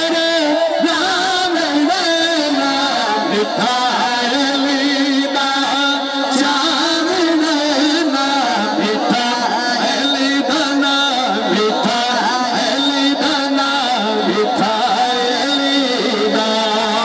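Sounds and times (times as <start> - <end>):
man singing amplified devotional song: 0.0 - 17.0.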